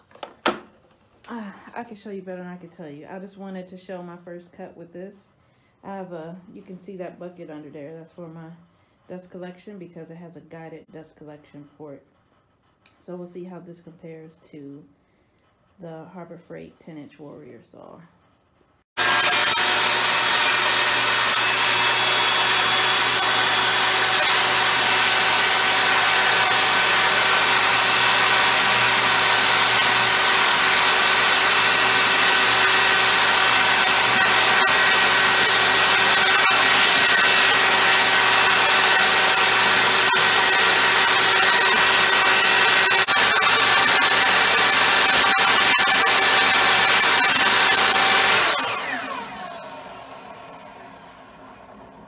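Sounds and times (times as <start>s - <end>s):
table saw whining: 19.0s - 52.0s.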